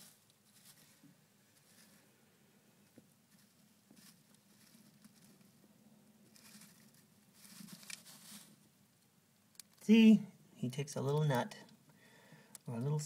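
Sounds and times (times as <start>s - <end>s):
gerbil rustling in bedding: 0.0s - 2.1s, 3.1s - 5.6s, 6.3s - 8.6s.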